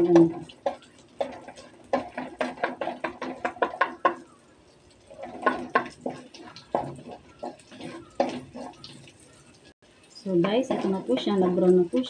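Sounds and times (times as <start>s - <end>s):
spatula knocking against wok: 0.0s - 4.4s, 5.3s - 8.9s
garlic frying in oil: 0.0s - 12.0s.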